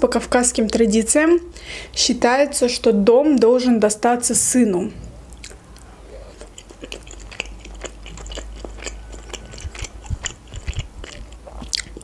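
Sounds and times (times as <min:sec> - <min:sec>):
person chewing pasta: 0:05.3 - 0:12.0.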